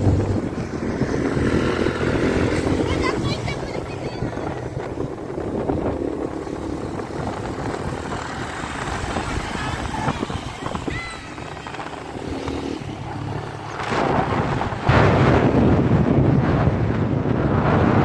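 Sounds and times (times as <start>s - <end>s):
scooter engine hum: 0.0s - 14.9s
road and wind noise: 0.0s - 18.0s
wind buffeting microphone: 0.0s - 18.0s.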